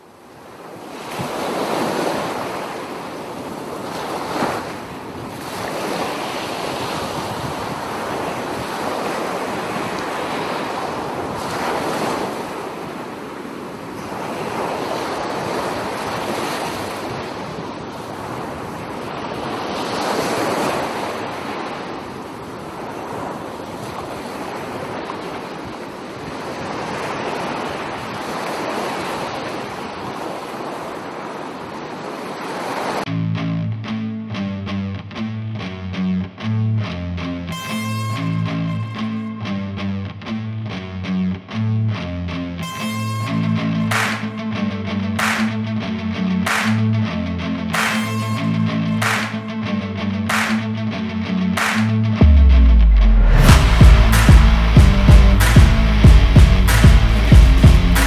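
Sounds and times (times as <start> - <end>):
waves washing in and breaking: 0.0 - 33.1, 42.6 - 58.0
wind on microphone: 3.3 - 19.6.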